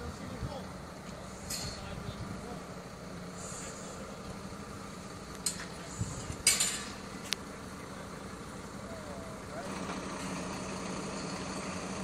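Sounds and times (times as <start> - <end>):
short clinks and clatters: 6.4 - 7.0.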